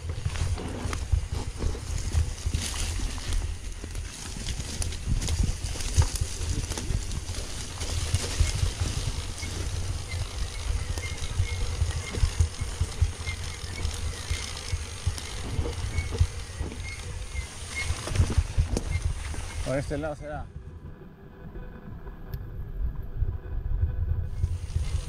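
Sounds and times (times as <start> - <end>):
bike knocks and rattles: 0.0 - 19.8
wind buffeting microphone: 0.0 - 25.0.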